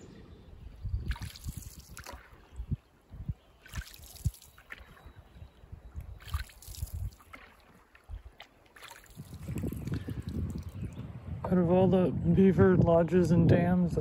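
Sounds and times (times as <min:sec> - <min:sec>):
paddles splashing in water: 0:01.0 - 0:10.9.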